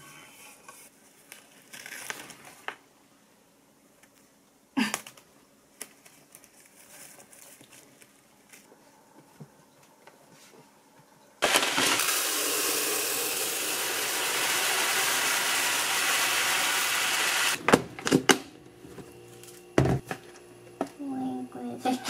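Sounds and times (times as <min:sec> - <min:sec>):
rice pouring into container: 0:11.4 - 0:17.6.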